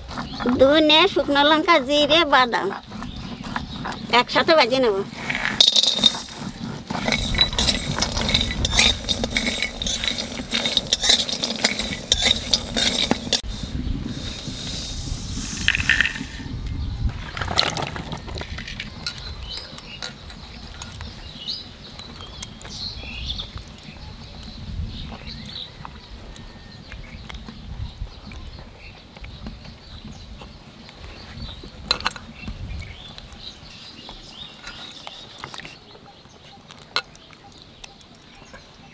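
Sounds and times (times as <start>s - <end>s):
spices rattling in metal pan: 5.2s - 16.4s.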